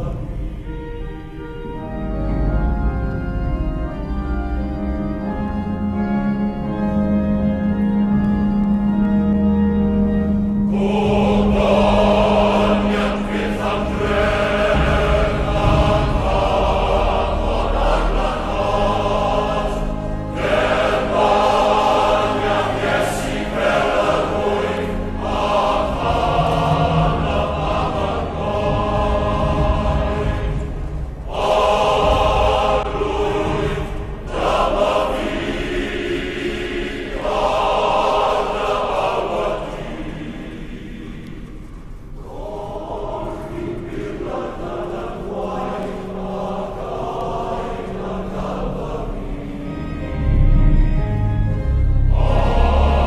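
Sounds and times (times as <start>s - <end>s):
choir singing chant-like phrases: 0.0s - 1.6s, 10.6s - 53.0s
slow held chords: 0.0s - 53.0s
steady low bass: 8.0s - 22.8s, 23.6s - 36.7s.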